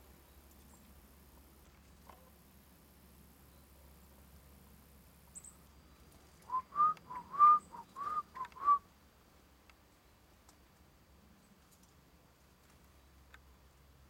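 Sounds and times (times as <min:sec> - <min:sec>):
person whistling: 0:06.5 - 0:08.8.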